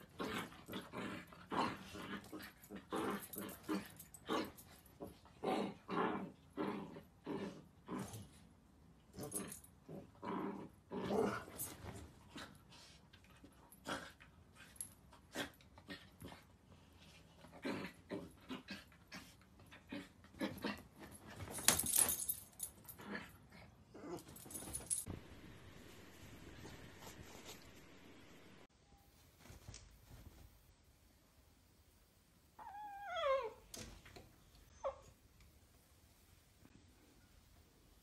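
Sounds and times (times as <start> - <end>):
dog growling and whining: 32.6 - 33.7.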